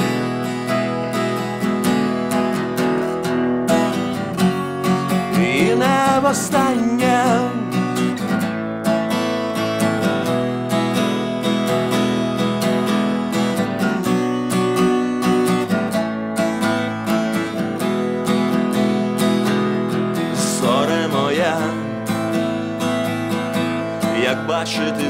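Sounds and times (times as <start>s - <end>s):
acoustic guitar strumming: 0.0s - 25.0s
person singing: 5.2s - 8.0s, 20.2s - 22.2s, 23.9s - 25.0s.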